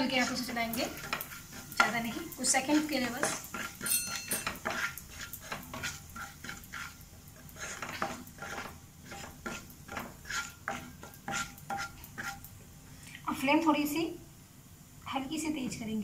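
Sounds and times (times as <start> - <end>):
spatula scraping a pan: 0.0 - 12.5
spices sizzling in oil: 0.0 - 14.0.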